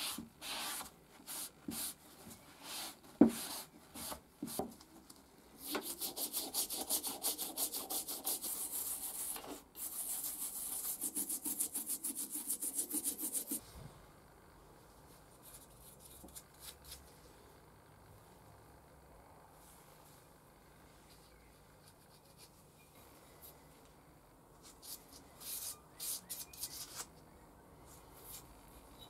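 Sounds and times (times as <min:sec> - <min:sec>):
faint room noise: 0:00.0 - 0:29.0
toothbrush scrubbing metal: 0:05.8 - 0:13.6.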